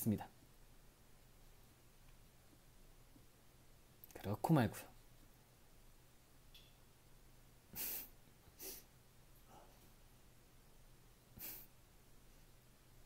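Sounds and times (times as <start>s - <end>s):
faint low hum: 0.0s - 13.0s
soft breaths close to microphone: 7.7s - 10.1s.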